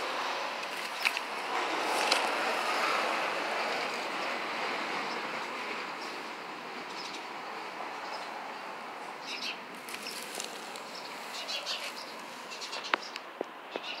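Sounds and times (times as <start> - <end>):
steady outdoor hiss: 0.0 - 14.0
birds chirping: 6.9 - 7.3, 9.2 - 14.0.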